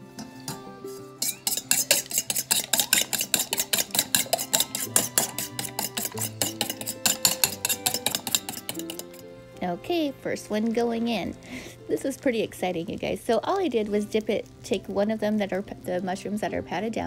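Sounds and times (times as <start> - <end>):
fork beating eggs in metal bowl: 0.5 - 9.3.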